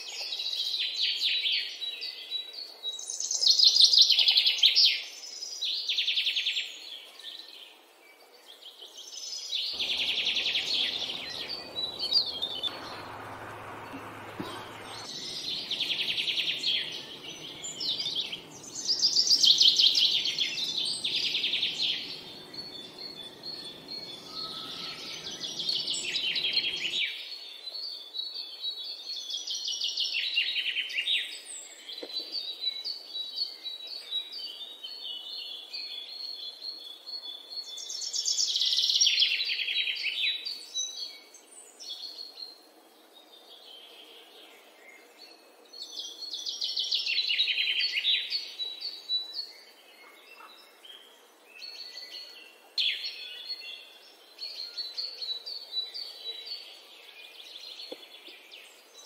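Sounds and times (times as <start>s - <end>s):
faint low background noise: 0.0s - 59.0s
songbirds singing and chirping: 0.0s - 59.0s.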